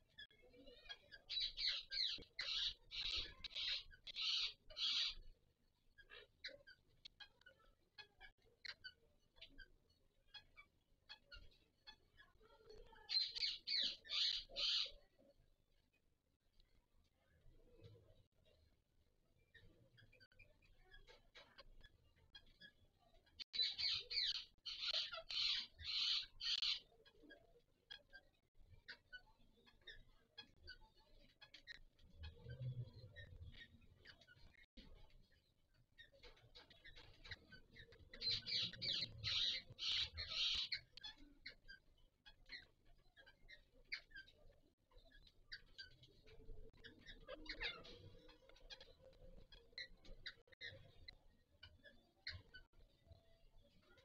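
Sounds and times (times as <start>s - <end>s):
faint bird chirps: 0.0s - 54.0s
parakeets raspy calls: 0.8s - 5.4s, 12.8s - 15.2s, 23.6s - 28.2s, 36.2s - 44.4s, 45.5s - 51.0s
parakeet screeching calls: 38.2s - 40.8s.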